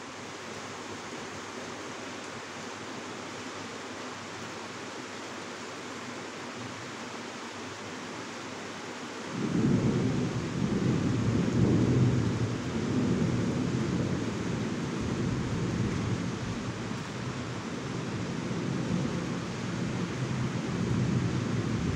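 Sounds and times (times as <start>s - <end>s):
rain falling: 0.0s - 21.9s
low rumble of thunder: 9.4s - 17.4s, 18.0s - 21.9s.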